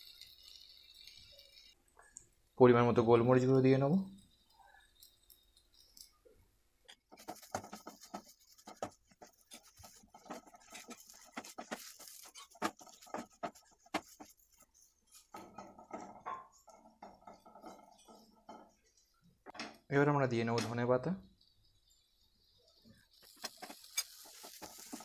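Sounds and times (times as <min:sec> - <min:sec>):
wooden spatula scraping frying pan: 0:07.1 - 0:18.8, 0:23.2 - 0:25.0.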